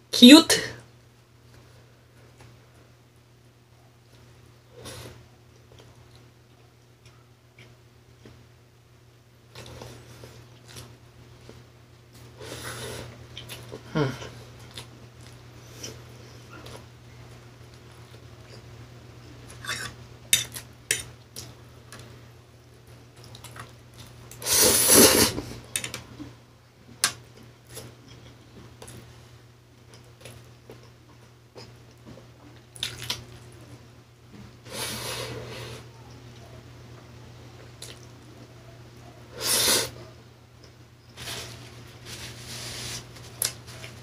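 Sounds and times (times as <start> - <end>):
man chewing: 11.5 - 16.9, 22.9 - 26.3, 29.8 - 33.6, 37.8 - 38.4.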